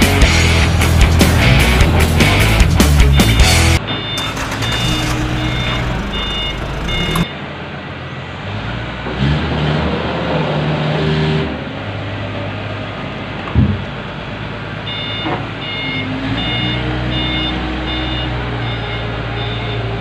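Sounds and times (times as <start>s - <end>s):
diesel engine running: 0.3s - 7.6s
reversing alarm beeping: 3.1s - 7.4s, 14.9s - 19.9s.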